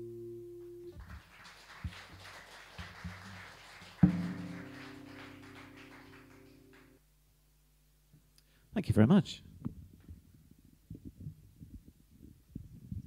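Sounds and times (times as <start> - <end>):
acoustic guitar strumming: 4.0 - 7.0.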